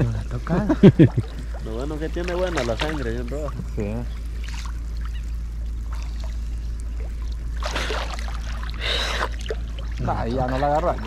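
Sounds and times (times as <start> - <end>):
steady low rumble: 0.0 - 11.0
water splashing and sloshing: 0.0 - 11.0.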